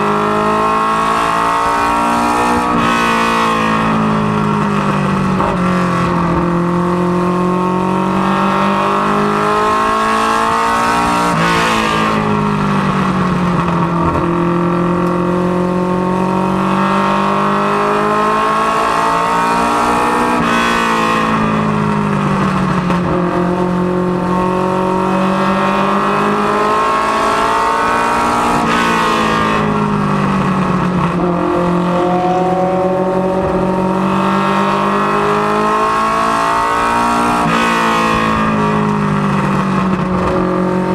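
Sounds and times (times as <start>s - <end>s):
race car engine under load: 0.0s - 16.8s, 18.0s - 40.9s.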